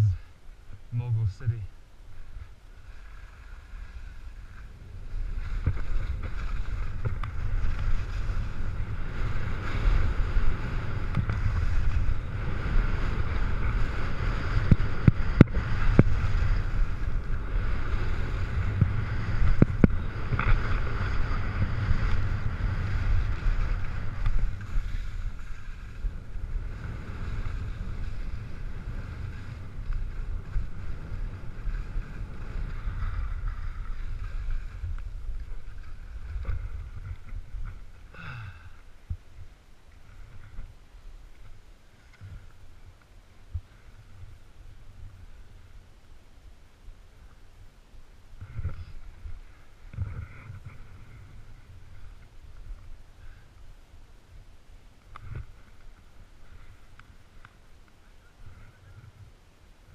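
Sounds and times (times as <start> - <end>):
skis scraping on snow: 2.1 - 38.2, 39.4 - 45.8, 48.3 - 53.7, 55.0 - 59.3
wind buffeting microphone: 3.6 - 38.3.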